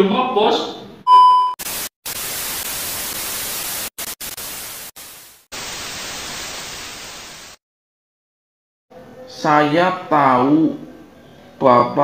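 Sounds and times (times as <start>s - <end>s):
tv static hiss: 1.6s - 7.6s.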